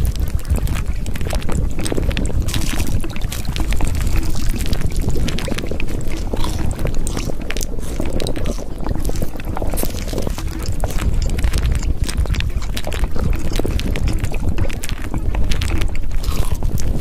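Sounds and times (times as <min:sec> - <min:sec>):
rushing water: 0:00.0 - 0:17.0
small splashes and crackles: 0:00.0 - 0:17.0.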